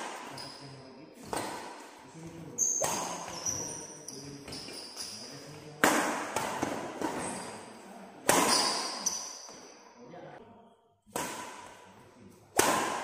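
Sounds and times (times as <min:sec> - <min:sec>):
badminton racket hitting shuttlecock: 0:02.7 - 0:03.7, 0:08.2 - 0:09.5, 0:11.1 - 0:11.8, 0:12.5 - 0:13.0.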